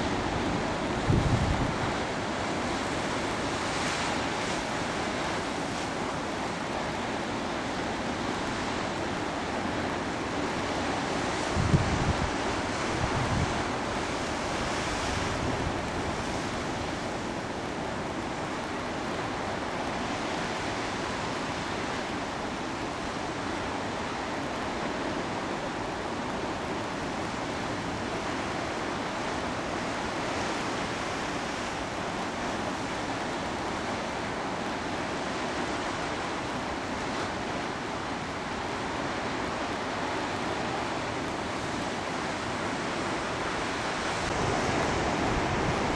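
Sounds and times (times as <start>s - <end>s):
wind buffeting microphone: 0.1s - 2.5s, 11.3s - 17.6s, 42.3s - 45.9s.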